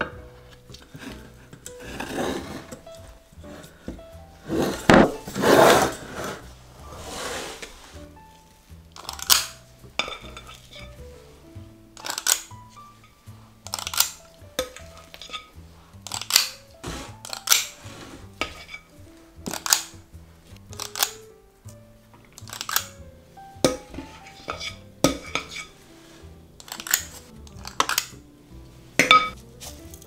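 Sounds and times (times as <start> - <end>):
soft background music: 0.0 - 30.0
scoop scraping glass bowl: 1.0 - 3.7, 4.4 - 8.0, 16.8 - 19.0, 23.6 - 26.3.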